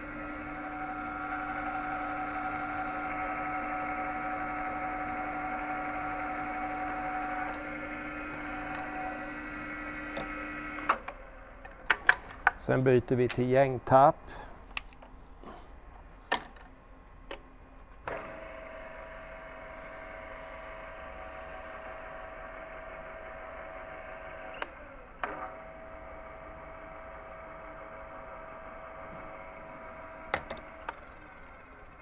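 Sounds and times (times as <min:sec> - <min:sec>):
drilling machine motor whining: 0:00.0 - 0:11.0, 0:18.1 - 0:32.0.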